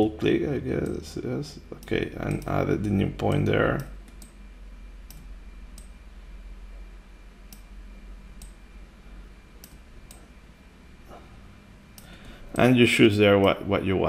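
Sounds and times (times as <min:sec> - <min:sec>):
faint low hum: 0:00.0 - 0:14.0
computer mouse clicking: 0:01.8 - 0:02.6, 0:03.3 - 0:04.4, 0:05.0 - 0:06.0, 0:07.5 - 0:07.7, 0:08.4 - 0:08.6, 0:09.6 - 0:10.3.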